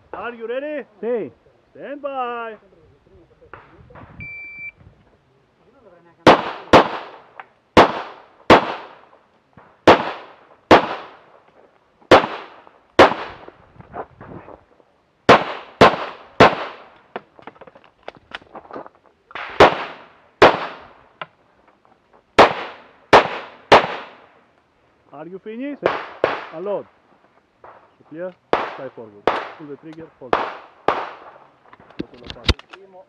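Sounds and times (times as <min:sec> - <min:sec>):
pistol shots: 0:06.2 - 0:09.1, 0:09.8 - 0:11.3, 0:12.1 - 0:13.4, 0:15.3 - 0:17.0, 0:19.4 - 0:20.9, 0:22.4 - 0:24.3, 0:25.8 - 0:26.7, 0:28.5 - 0:31.4.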